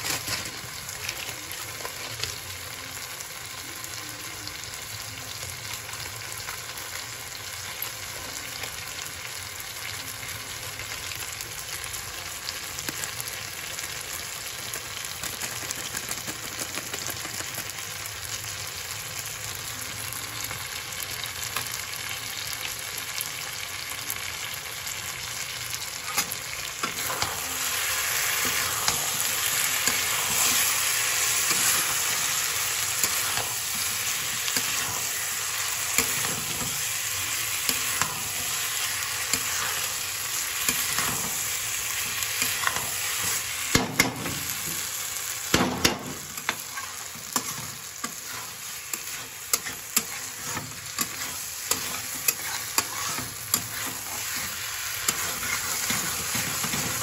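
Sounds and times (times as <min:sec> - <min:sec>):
vegetables sizzling in oil: 0:00.0 - 0:57.0
spatula stirring and scraping: 0:26.0 - 0:43.6, 0:46.2 - 0:57.0.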